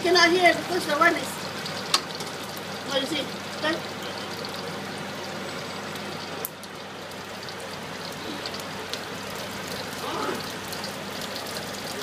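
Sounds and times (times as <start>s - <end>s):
prawns sizzling in a wok: 0.0s - 12.0s.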